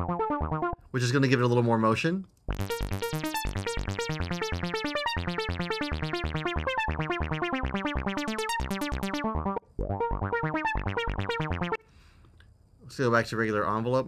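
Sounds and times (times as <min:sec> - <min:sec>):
plucky synth notes: 0:00.0 - 0:00.8, 0:02.5 - 0:11.8.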